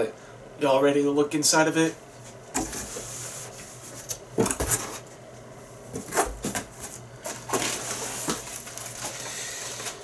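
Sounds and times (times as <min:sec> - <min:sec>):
nylon rustling against cardboard: 0:06.0 - 0:10.0.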